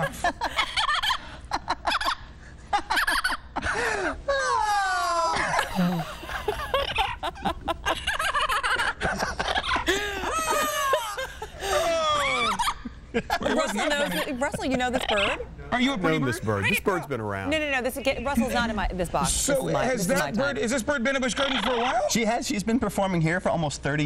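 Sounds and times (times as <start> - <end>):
parrot cackling like laughter: 0.8 - 3.5.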